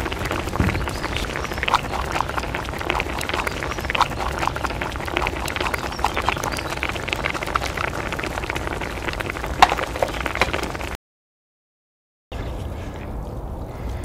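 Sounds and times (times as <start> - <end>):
broth boiling and bubbling: 0.0 - 11.0.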